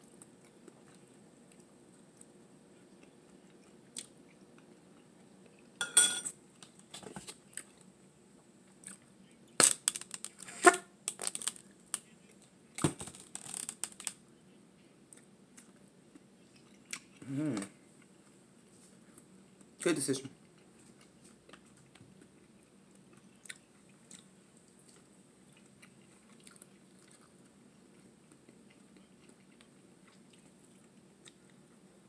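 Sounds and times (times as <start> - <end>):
chewing: 0.1 - 5.8, 15.1 - 18.4, 20.4 - 31.8
utensils clattering on grill plate: 5.8 - 6.3.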